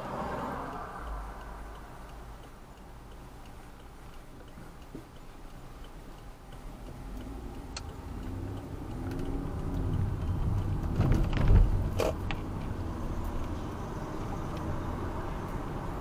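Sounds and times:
car engine and tyre noise: 0.0 - 16.0
turn signal clicking: 0.5 - 16.0
clatter of knocks: 10.9 - 12.2.

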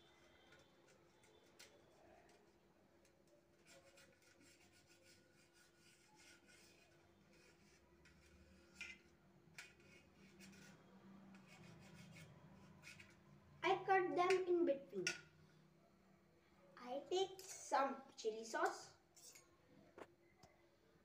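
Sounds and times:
knife sawing through bread: 9.7 - 13.2.

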